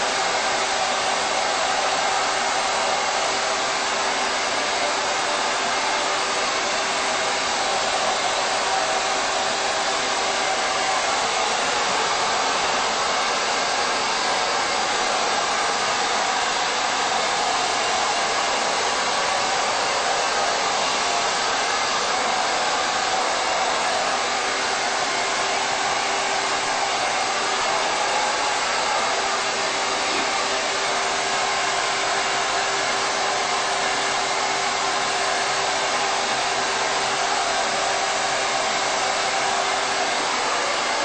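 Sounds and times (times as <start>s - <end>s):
hair dryer blowing: 0.0s - 41.0s.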